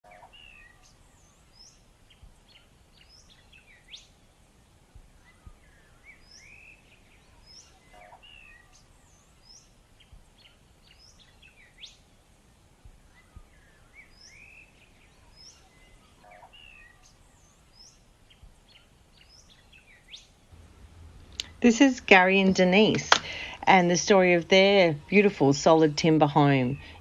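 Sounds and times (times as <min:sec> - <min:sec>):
small birds chirping: 0:00.1 - 0:20.5, 0:21.3 - 0:27.0
low background rumble: 0:20.5 - 0:27.0.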